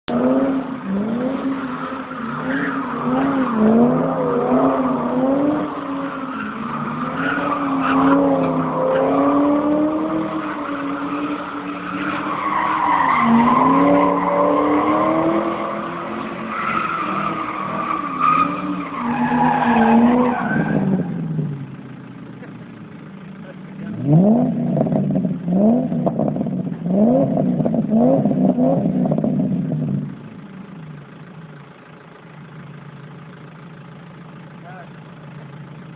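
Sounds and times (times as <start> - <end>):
engine revving hard: 23.8 - 29.4.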